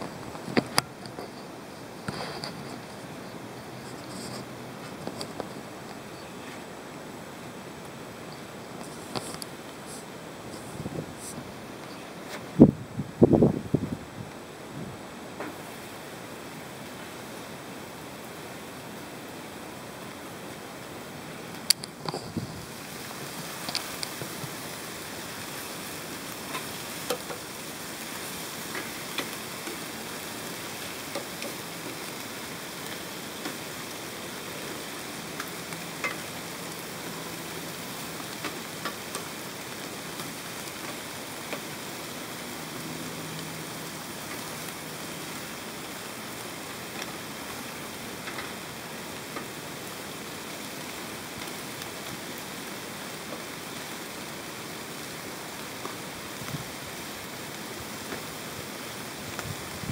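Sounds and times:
small pops and clicks: 21.6 - 22.4
meat sizzling in a pan: 22.6 - 46.4.

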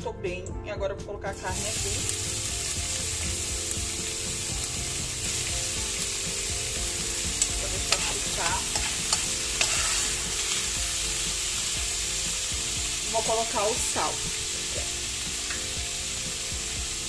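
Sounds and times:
beef sizzling in a pan: 1.5 - 17.0
spoon scraping a pan: 7.7 - 10.8.

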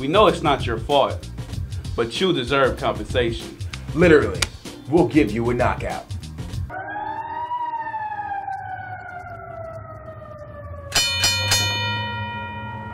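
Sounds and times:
siren-like tone: 6.7 - 12.9
bell ringing: 10.9 - 12.9.

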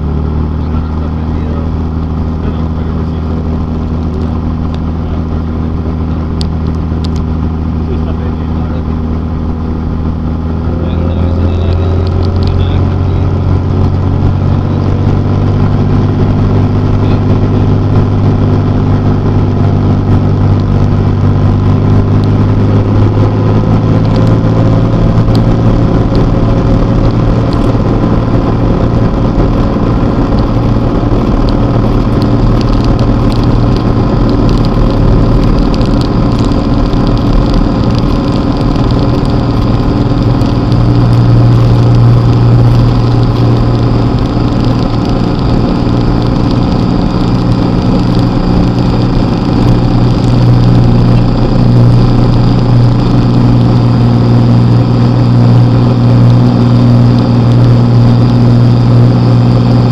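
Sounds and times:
light aircraft engine running: 0.0 - 59.9.

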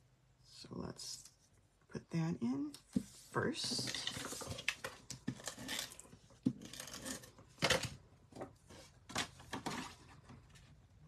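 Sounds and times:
paper rustling and scraping: 2.9 - 10.8.

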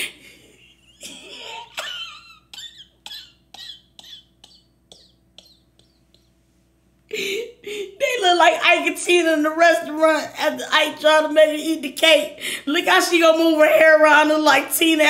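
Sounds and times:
woman laughing wheezily: 0.0 - 4.3, 7.1 - 8.0.

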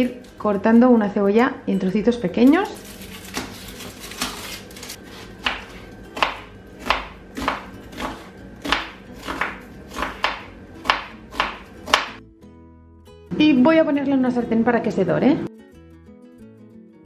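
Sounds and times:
knife slicing onion on board: 2.8 - 12.2.

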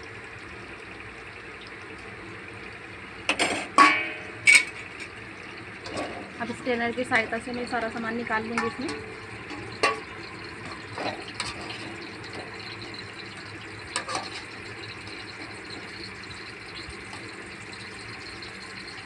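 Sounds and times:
hot oil hissing: 2.9 - 19.0
wire strainer scraping a pan: 3.4 - 5.2, 5.8 - 6.4, 8.5 - 16.1.

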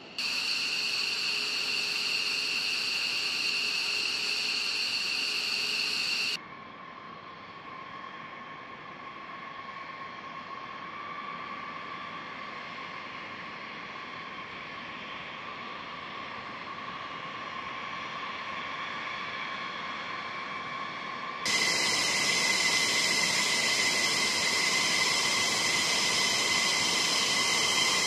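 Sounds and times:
loud jet engine hiss with whines: 0.0 - 6.4, 21.5 - 28.0
taxiing jet engines whining: 0.0 - 6.4, 21.5 - 28.0.

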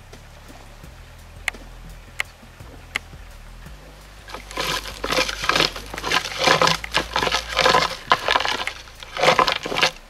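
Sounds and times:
branches cracking and snapping: 4.3 - 10.0.

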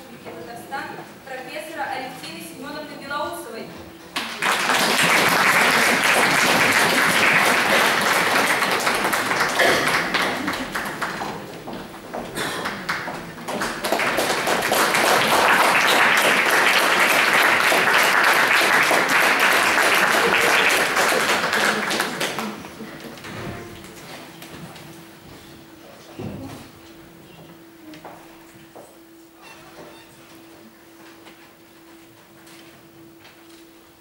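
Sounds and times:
audience applauding: 4.2 - 23.2.

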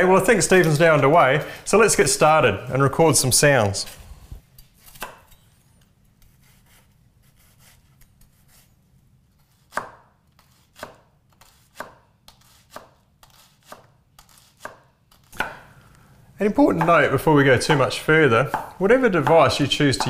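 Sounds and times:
knife chopping on wooden board: 9.6 - 15.7, 18.5 - 20.0.

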